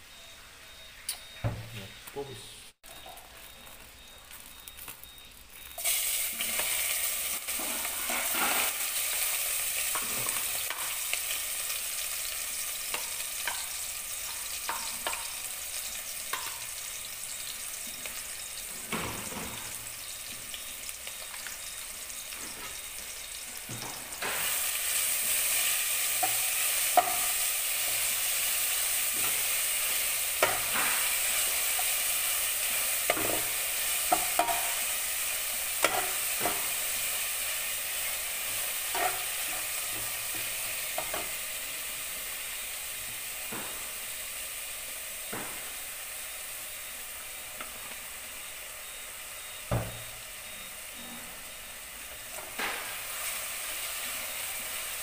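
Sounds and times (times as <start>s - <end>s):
onions sizzling in hot oil: 0.1s - 55.0s
metal spatula scraping pot: 7.5s - 8.8s.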